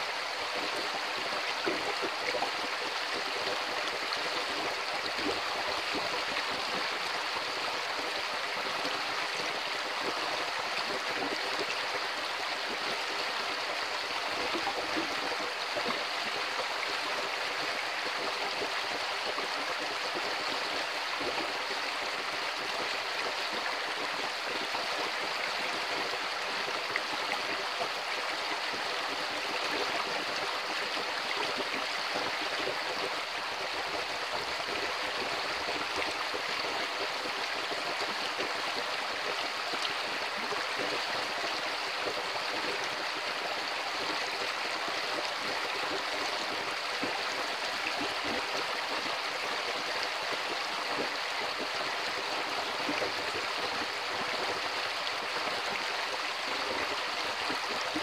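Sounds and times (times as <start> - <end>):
creek water flowing over rocks: 0.0 - 58.0.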